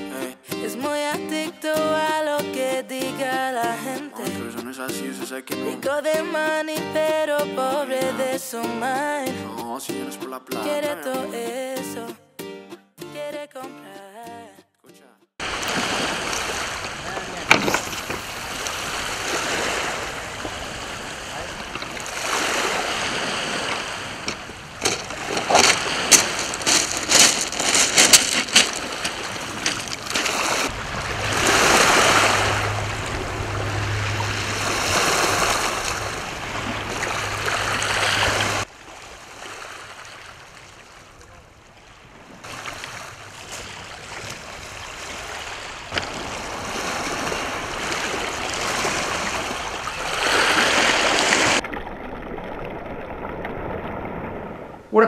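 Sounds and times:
small waves washing on shore: 0:15.4 - 0:55.0.

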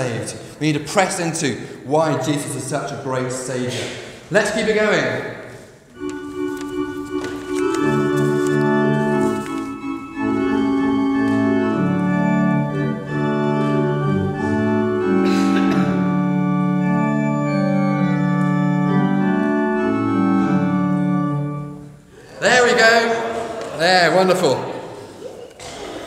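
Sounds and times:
organ playing sustained chords: 0:05.9 - 0:24.8.

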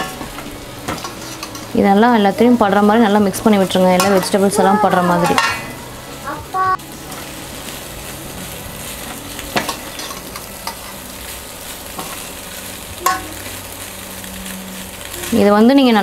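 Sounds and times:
pasta sizzling in a pan: 0:00.0 - 0:16.0
ladle tapping a pan: 0:13.0 - 0:13.3.

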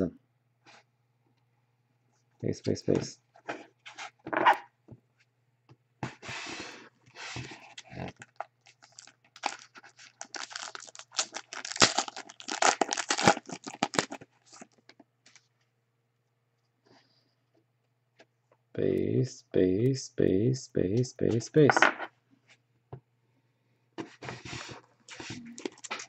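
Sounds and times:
card pack wrappers crinkling: 0:07.8 - 0:15.4, 0:25.4 - 0:26.0.

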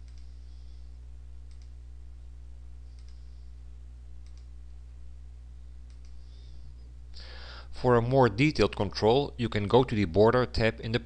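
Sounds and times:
computer mouse clicking: 0:00.0 - 0:00.3, 0:01.5 - 0:01.8, 0:02.9 - 0:03.2, 0:04.2 - 0:04.5, 0:05.9 - 0:06.2
low electrical hum: 0:00.0 - 0:11.0.

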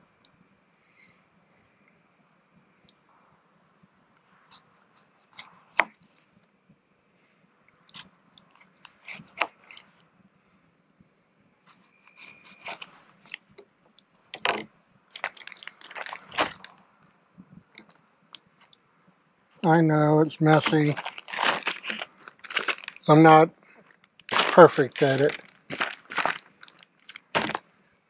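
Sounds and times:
high-pitched insect drone: 0:17.7 - 0:28.0.

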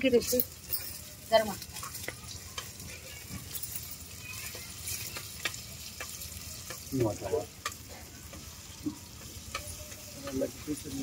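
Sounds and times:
curry sizzling in a pan: 0:00.0 - 0:11.0
spoon clicking against pan: 0:03.5 - 0:10.6.

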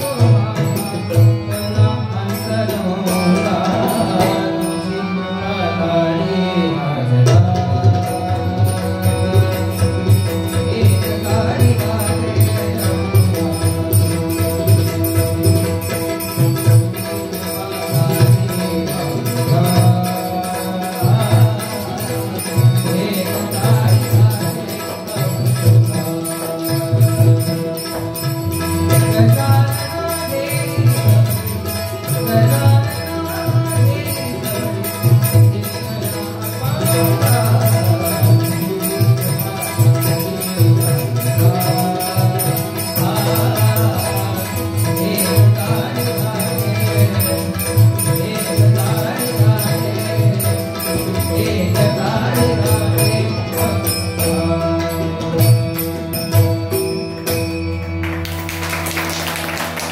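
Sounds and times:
harmonium chords: 0:00.0 - 0:59.9
tabla rhythm: 0:00.0 - 0:59.9
hand cymbals ringing: 0:08.2 - 0:59.9.

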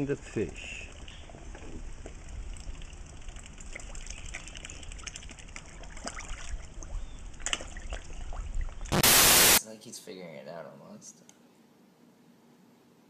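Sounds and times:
water splashing and lapping: 0:01.0 - 0:09.0.

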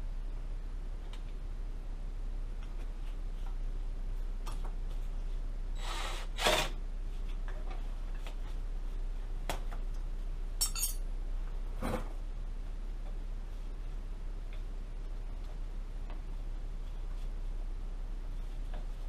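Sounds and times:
metal clank: 0:10.6 - 0:11.0
socket tool clicks and metal clinks: 0:10.6 - 0:11.0.

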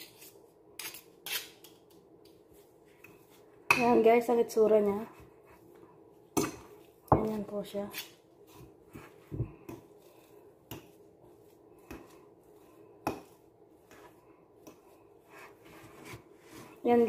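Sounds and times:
fork tapping and scraping a bowl: 0:13.0 - 0:15.0.

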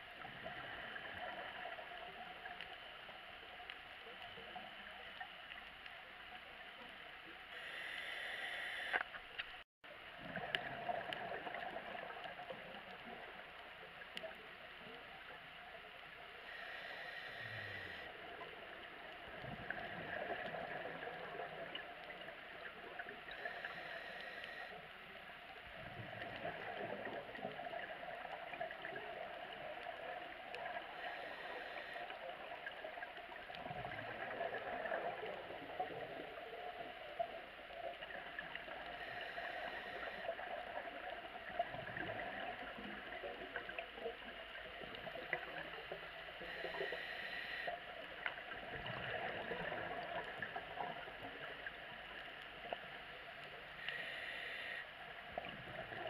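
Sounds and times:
inhaled breath hiss: 0:07.5 - 0:09.0, 0:16.4 - 0:18.2, 0:23.3 - 0:24.8, 0:30.8 - 0:32.6, 0:38.9 - 0:40.6, 0:46.3 - 0:47.8, 0:53.8 - 0:55.0
gurgling exhaled bubbles: 0:10.1 - 0:13.4, 0:25.7 - 0:31.2, 0:32.2 - 0:45.8, 0:48.4 - 0:51.7.

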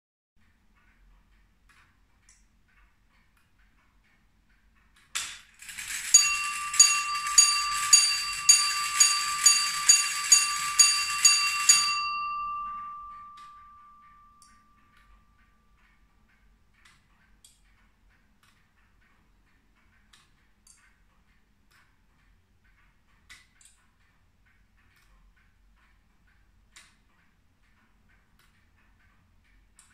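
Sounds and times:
faint clock ticking: 0:00.4 - 0:29.9
clock bell striking: 0:05.6 - 0:14.8.

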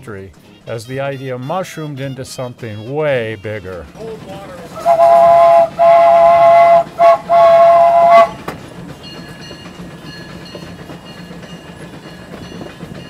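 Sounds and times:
locomotive running noise: 0:00.0 - 0:13.0
steam locomotive whistle: 0:04.6 - 0:08.5.

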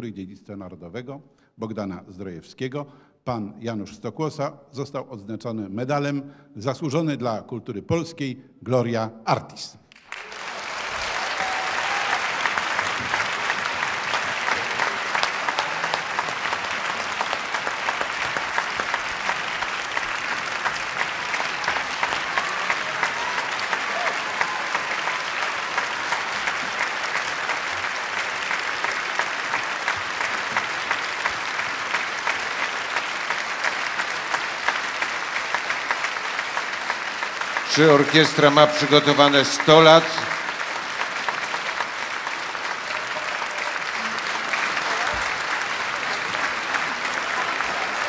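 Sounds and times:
audience applauding: 0:09.9 - 0:48.0.

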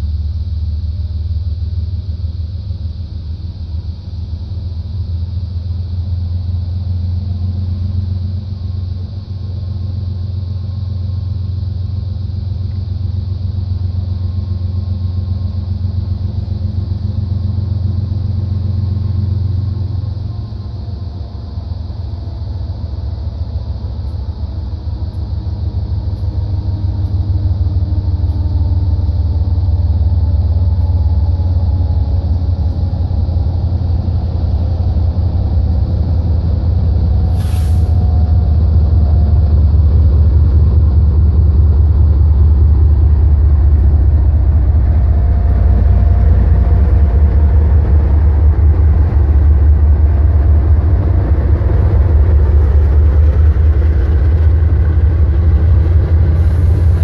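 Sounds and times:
diesel locomotive engine rumble: 0:00.0 - 0:57.0
freight cars rolling by: 0:06.6 - 0:57.0
brief hiss: 0:37.2 - 0:38.1.

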